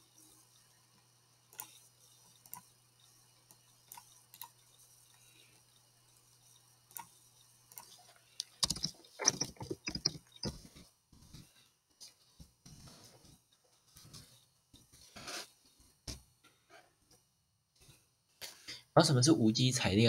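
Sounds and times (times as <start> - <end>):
faint steady hum: 0.0 - 20.0
computer mouse clicks: 1.5 - 1.8, 2.4 - 2.7, 6.9 - 10.7
keyboard keystrokes: 8.5 - 10.6.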